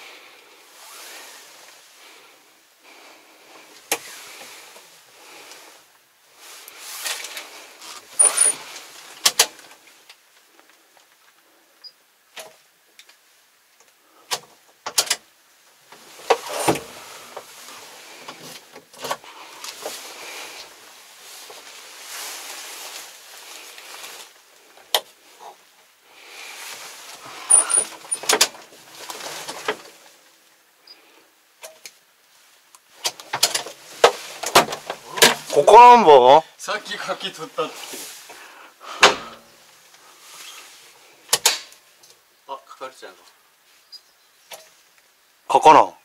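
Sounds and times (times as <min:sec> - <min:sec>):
clothing rustling: 0:00.6 - 0:11.2, 0:15.8 - 0:30.4, 0:32.2 - 0:35.7, 0:37.1 - 0:38.6.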